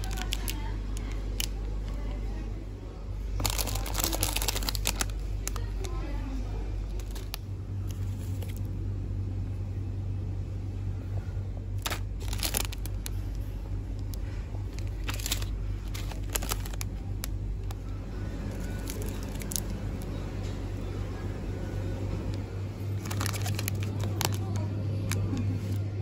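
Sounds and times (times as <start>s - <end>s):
plastic wrappers crinkling: 0.0s - 2.0s, 3.3s - 6.1s, 6.8s - 8.7s, 11.8s - 20.2s, 22.9s - 25.9s
steady low hum: 0.0s - 26.0s.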